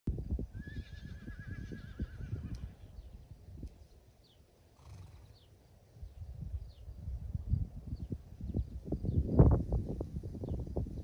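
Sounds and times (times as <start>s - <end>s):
horse whinnying: 0.6s - 2.8s, 4.8s - 5.3s.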